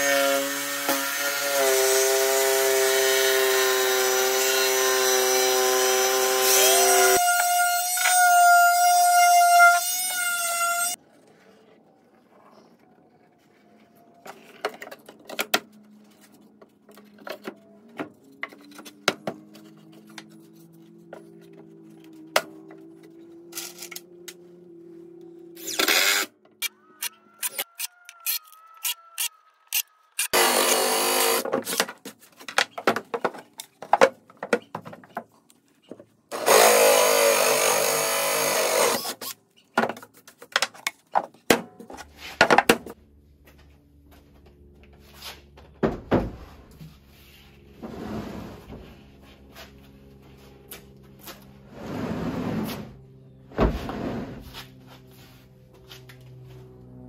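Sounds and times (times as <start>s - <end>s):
cordless drill whining: 27.4s - 31.5s, 36.3s - 39.4s
power tool on wood: 29.7s - 31.8s, 36.3s - 39.3s.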